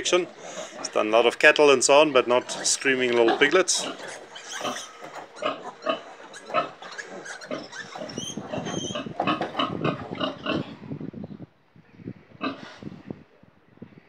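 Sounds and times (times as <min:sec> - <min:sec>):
piglets squealing: 0:00.0 - 0:10.6
piglets grunting: 0:00.0 - 0:10.8.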